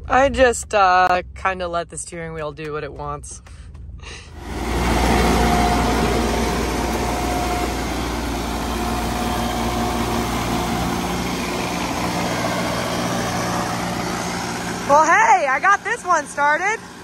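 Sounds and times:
engine running steadily: 0.0 - 17.0.

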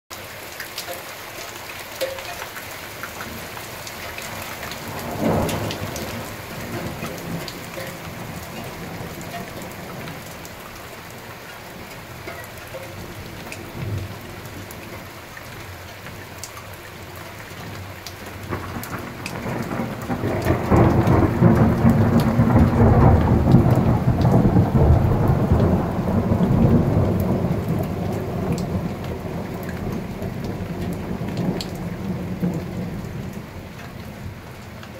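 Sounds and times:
steady rain: 0.1 - 34.9
thunder: 4.8 - 10.2, 18.4 - 33.5.

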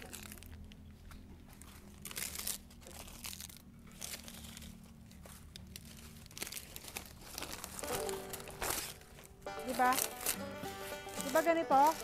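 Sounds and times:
rustling and crinkling: 0.0 - 12.0.

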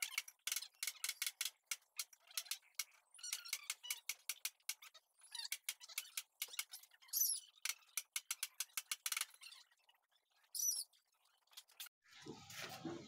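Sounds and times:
bird chirp: 4.8 - 11.8.

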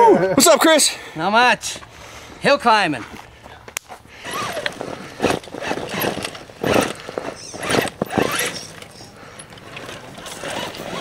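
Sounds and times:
rc truck motor whining: 4.2 - 11.0.

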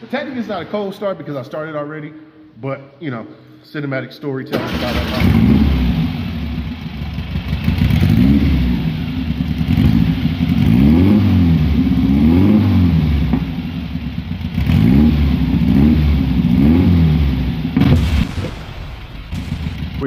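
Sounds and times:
car engine revving: 4.6 - 20.0.

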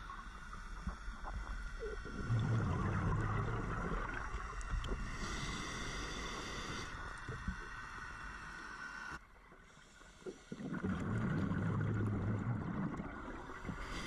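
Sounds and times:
low bubbling rumble: 0.0 - 5.1, 10.6 - 13.9
muffled underwater ambience: 0.0 - 14.0.

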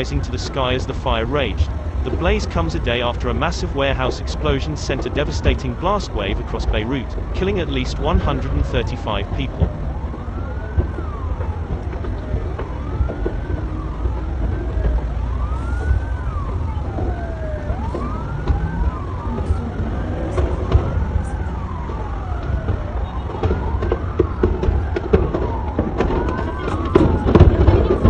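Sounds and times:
steady low rumble: 0.0 - 14.8
sirens wailing: 0.0 - 28.0.

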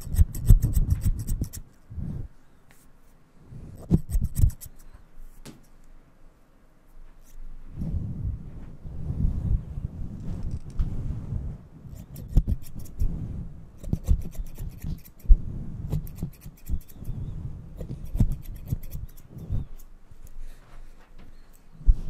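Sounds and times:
scissors snipping: 0.0 - 1.8, 3.8 - 4.9, 11.9 - 13.1, 13.8 - 15.3, 15.9 - 17.1, 17.8 - 19.9.

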